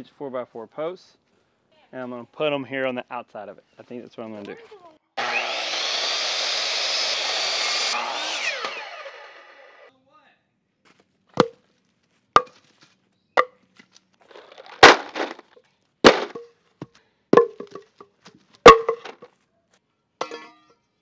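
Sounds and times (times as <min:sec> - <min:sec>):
wooden blocks knocking down: 0:14.3 - 0:16.5, 0:17.4 - 0:19.3.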